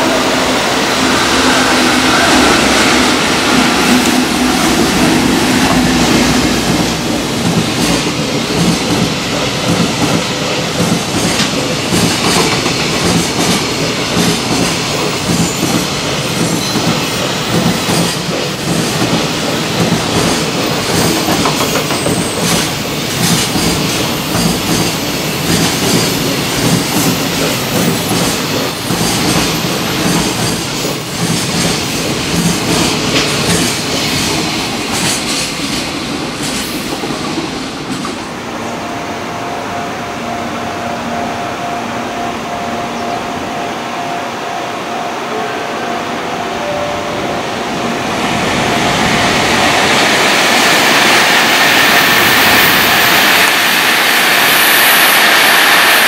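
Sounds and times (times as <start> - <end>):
electric locomotive passing: 0.0 - 56.0
train wheels clattering over rail joints: 3.9 - 38.3.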